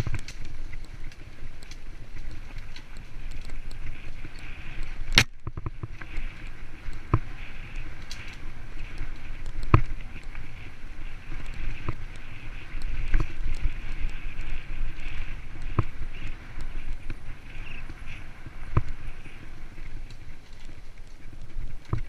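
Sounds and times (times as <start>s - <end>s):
bike tyres rumbling on dirt: 0.0s - 22.0s
bike knocks and rattles: 4.2s - 6.3s, 9.5s - 10.4s.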